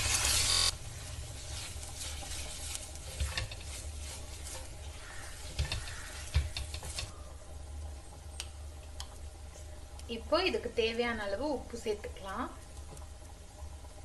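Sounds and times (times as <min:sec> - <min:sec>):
faint sizzle: 0:00.0 - 0:14.0
spatula scraping a pan: 0:01.0 - 0:07.2
spatula knocking against pan: 0:05.1 - 0:07.1.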